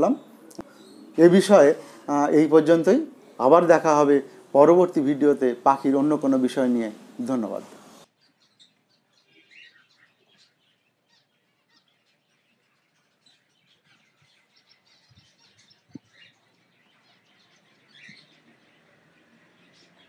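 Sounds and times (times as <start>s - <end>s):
cockatiels chirping: 8.2s - 20.0s.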